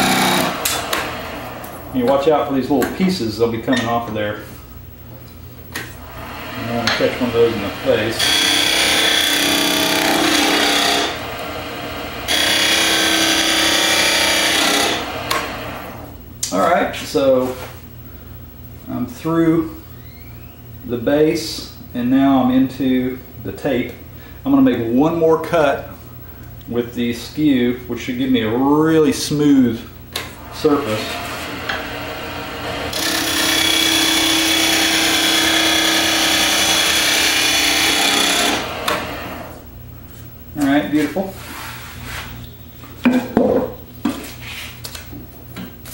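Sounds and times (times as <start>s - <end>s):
chisel cutting wood on lathe: 0.0s - 1.3s, 6.0s - 16.0s, 30.6s - 39.6s
lathe humming: 0.0s - 2.4s, 6.0s - 16.1s, 30.4s - 39.7s.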